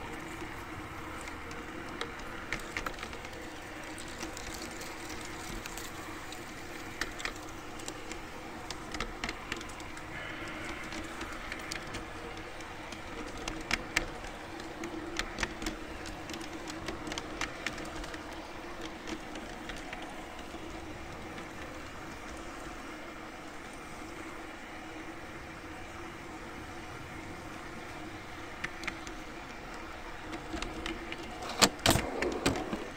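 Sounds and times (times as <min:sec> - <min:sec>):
wheels clicking over rail joints: 0:00.0 - 0:32.9.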